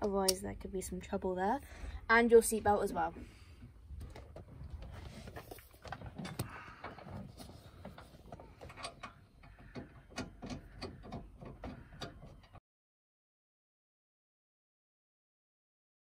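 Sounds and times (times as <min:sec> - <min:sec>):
hands rattling metal fittings: 0:04.1 - 0:12.6.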